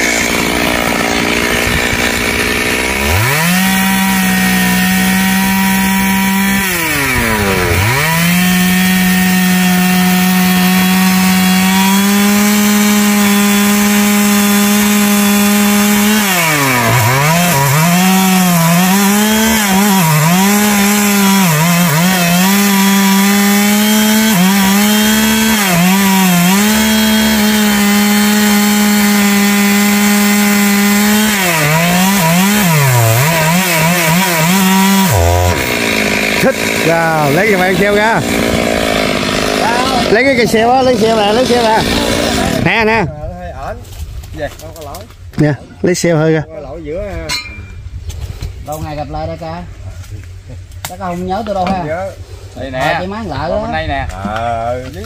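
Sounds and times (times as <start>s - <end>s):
chainsaw cutting wood: 0.0s - 42.9s.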